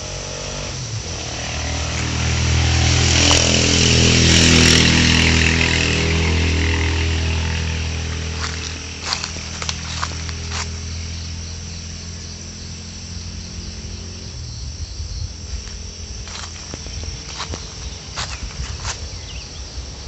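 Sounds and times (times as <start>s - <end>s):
distant motor engine humming: 0.0s - 20.0s
insects buzzing: 0.0s - 20.0s
footsteps on dry leaves: 5.6s - 11.3s, 15.5s - 19.6s.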